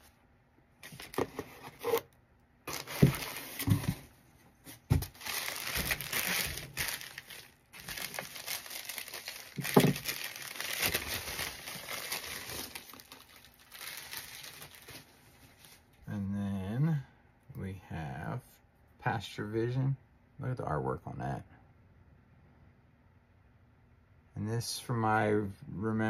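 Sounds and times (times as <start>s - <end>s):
packaging rustling and crinkling: 0.8s - 2.1s, 2.7s - 15.9s.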